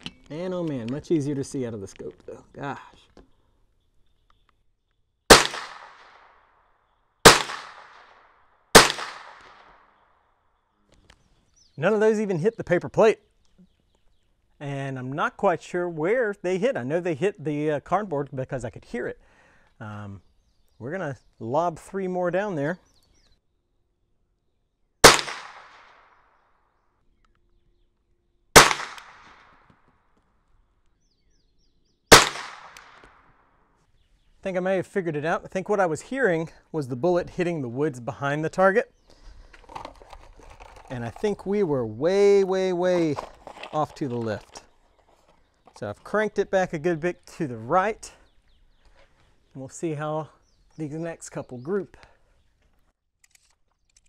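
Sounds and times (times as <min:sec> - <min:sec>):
rifle shots: 0:05.3 - 0:06.4, 0:07.2 - 0:10.0, 0:25.0 - 0:26.2, 0:28.6 - 0:29.6, 0:32.1 - 0:33.3.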